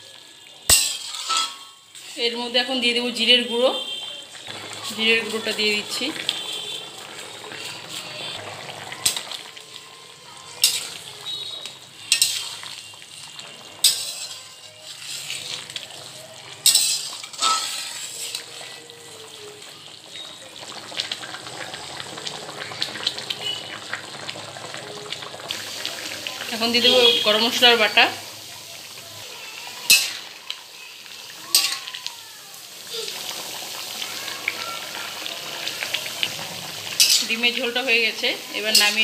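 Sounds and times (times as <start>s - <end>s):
curry simmering and bubbling: 0.0s - 39.0s
spatula clinking against pan: 0.7s - 1.8s, 10.6s - 12.6s, 13.8s - 15.4s, 16.6s - 18.6s, 29.8s - 30.2s, 31.5s - 32.0s, 37.0s - 37.3s.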